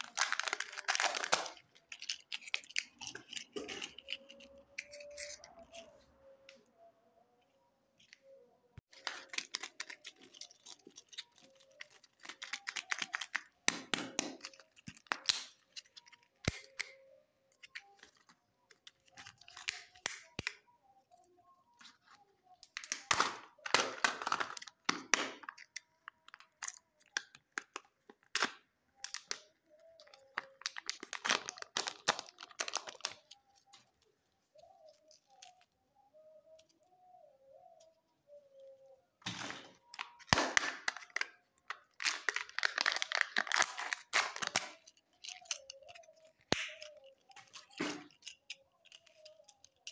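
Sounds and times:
plastic wrapper crinkling and tearing: 0.0 - 6.0, 8.8 - 21.1, 22.7 - 35.7, 39.2 - 49.9
plastic egg clicks: 8.8 - 20.6, 39.2 - 49.9.

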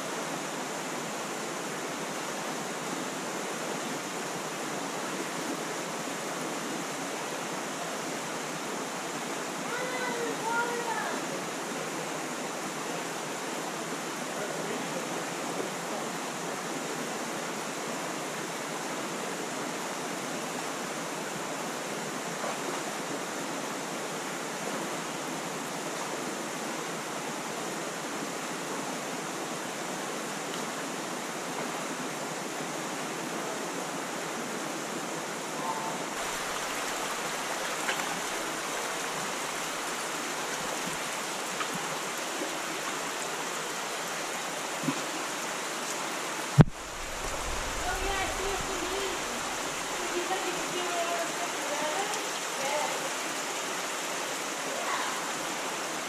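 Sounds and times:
stream rushing: 0.0 - 56.0.

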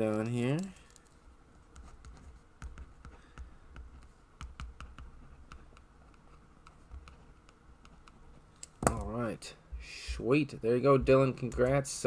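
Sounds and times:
soft low thumps: 9.7 - 11.3.

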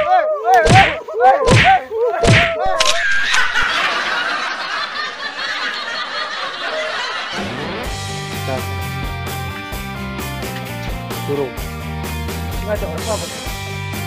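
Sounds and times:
thudding fight hits: 0.6 - 2.6.

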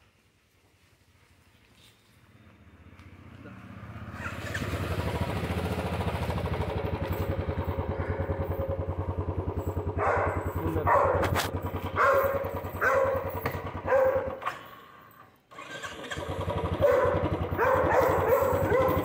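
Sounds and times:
motorcycle engine idling: 2.3 - 15.2, 15.9 - 19.0
dog barking: 10.0 - 14.5, 16.8 - 19.0.

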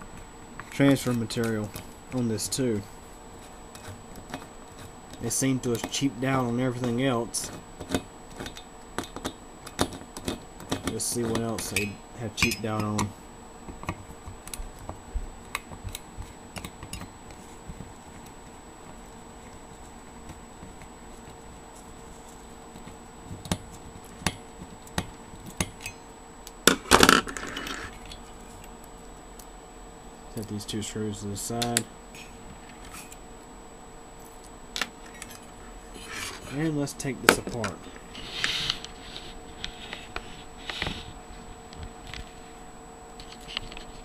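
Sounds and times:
faint steady hum: 0.0 - 44.0
small clicks and scrapes: 3.4 - 6.0, 6.8 - 11.8, 37.6 - 42.5, 43.2 - 44.0.

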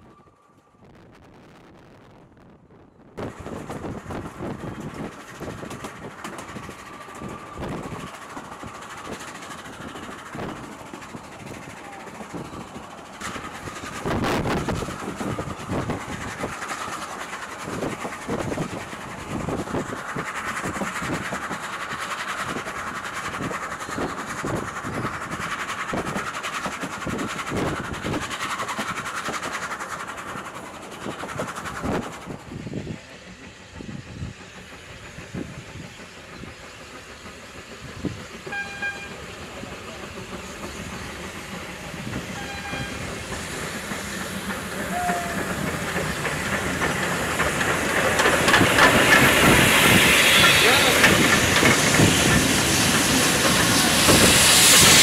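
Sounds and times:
steam locomotive working: 2.5 - 55.0
train wheels clattering over rail joints: 3.2 - 55.0
locomotive whistle toots: 38.4 - 39.3, 42.3 - 43.1, 44.8 - 45.6, 50.0 - 51.4.

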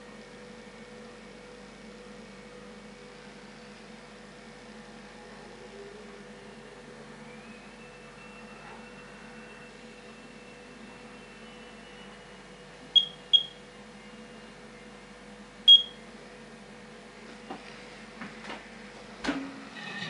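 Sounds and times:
dosimeter high beeps: 13.0 - 13.6, 15.7 - 16.0.

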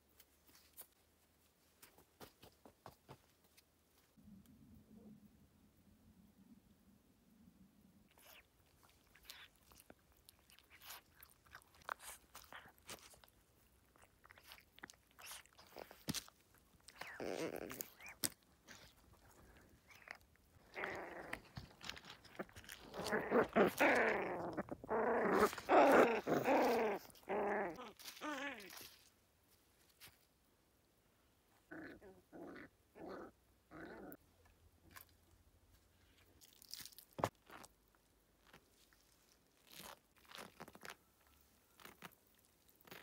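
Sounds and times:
puppies growling and whining: 16.9 - 29.0.

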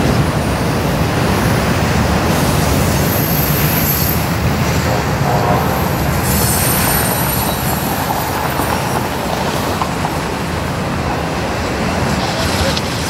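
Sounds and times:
train wheels rumbling on rail: 0.0 - 13.0.

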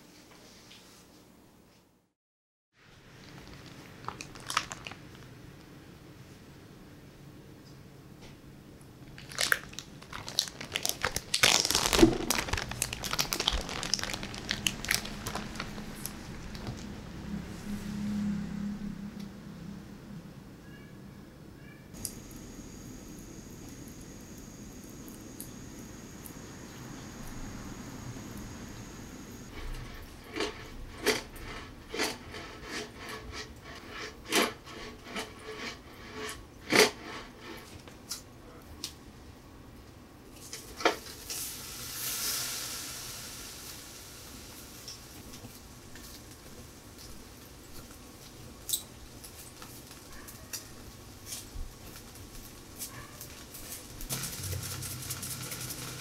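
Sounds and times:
plastic bag crinkling: 3.1 - 5.4, 9.1 - 16.9.

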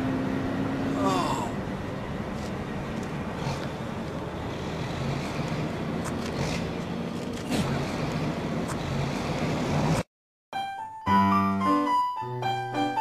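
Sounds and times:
low engine hum: 0.0 - 10.1
road traffic rumble: 0.0 - 10.1.

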